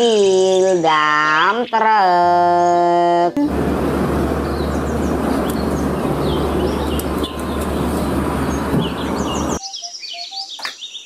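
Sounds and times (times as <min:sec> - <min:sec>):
birds chirping: 0:00.0 - 0:11.0
diesel truck engine rumbling: 0:03.5 - 0:09.6.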